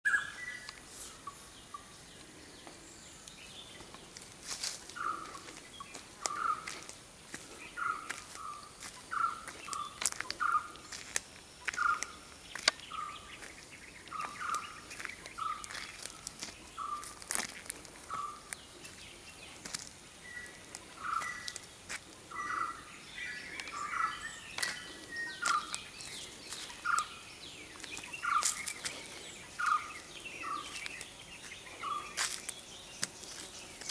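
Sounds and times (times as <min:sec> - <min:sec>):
birds chirping: 0:00.0 - 0:33.9.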